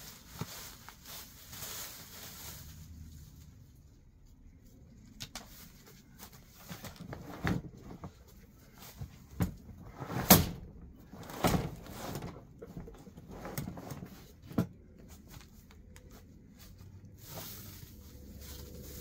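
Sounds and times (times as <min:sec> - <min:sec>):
dry plant debris rustling: 0:00.0 - 0:09.7, 0:10.5 - 0:19.0.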